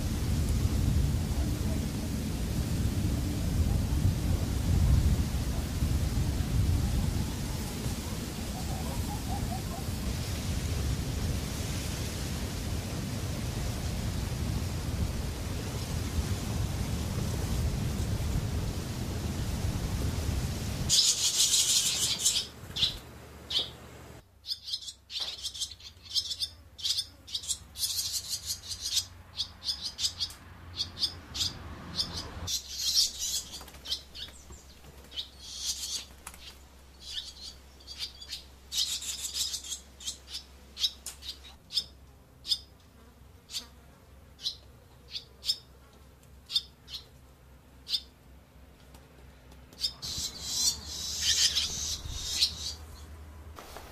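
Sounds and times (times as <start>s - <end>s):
swallows chirping: 20.9s - 23.8s, 24.4s - 42.6s, 49.8s - 53.2s
bird flock rushing in flight: 53.5s - 53.9s.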